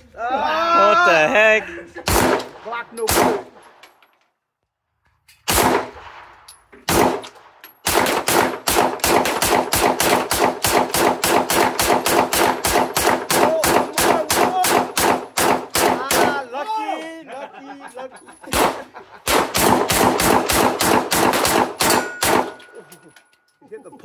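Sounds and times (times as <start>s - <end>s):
pistol gunshots: 2.0s - 3.8s, 5.4s - 16.4s, 18.5s - 22.8s.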